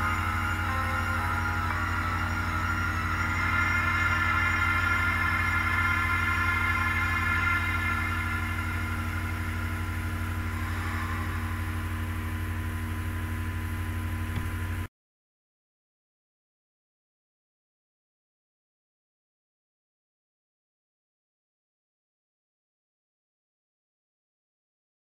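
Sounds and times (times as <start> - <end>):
droning chords: 0.0 - 14.9
pulsing bass: 0.0 - 14.9.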